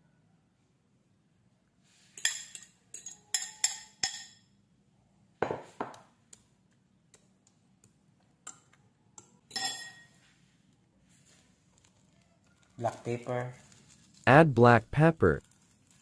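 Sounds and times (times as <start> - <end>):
kitchenware clinking on glass dish: 2.2 - 4.5, 9.5 - 10.2.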